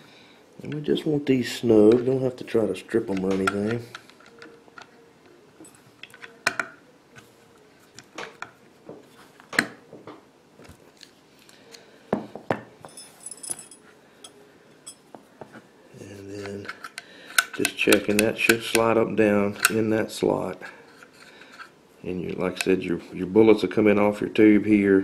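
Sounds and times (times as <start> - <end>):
metal parts and screwdriver clicking: 16.4 - 18.9.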